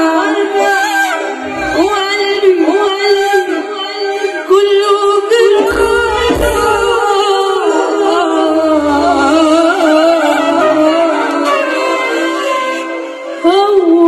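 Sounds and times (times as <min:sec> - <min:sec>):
keyboard accompaniment: 0:00.0 - 0:14.0
woman singing into a microphone: 0:00.0 - 0:14.0
low beats: 0:05.6 - 0:11.0.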